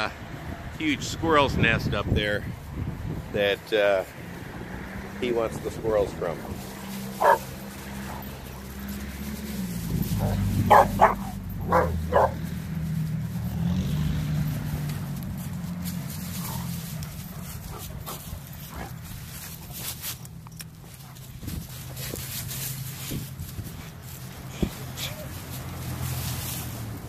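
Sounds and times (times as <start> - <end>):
dogs barking: 6.8 - 12.8, 16.3 - 19.0.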